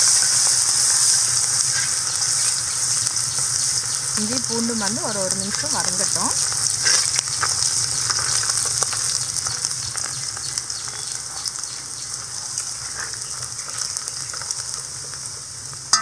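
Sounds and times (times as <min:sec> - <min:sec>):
ginger and garlic sizzling in oil: 0:00.0 - 0:16.0
metal ladle scraping wok: 0:06.8 - 0:07.2.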